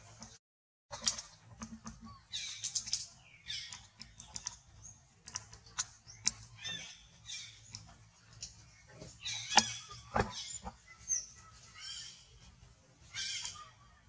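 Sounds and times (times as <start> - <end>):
soft clicks and rustles in tree: 0.0 - 11.5.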